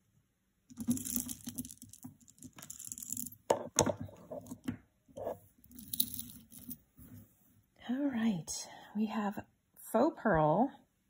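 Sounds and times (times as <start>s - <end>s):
necklace rustling on cloth: 5.2s - 7.6s.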